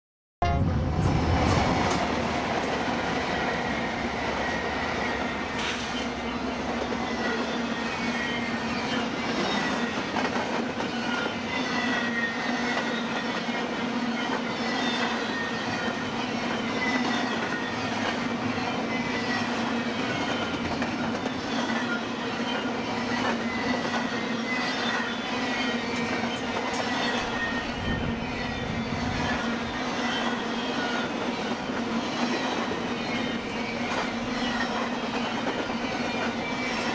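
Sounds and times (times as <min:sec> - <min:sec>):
train wheels rumbling on rails: 0:00.4 - 0:36.9
high wheel squeals: 0:21.2 - 0:36.9.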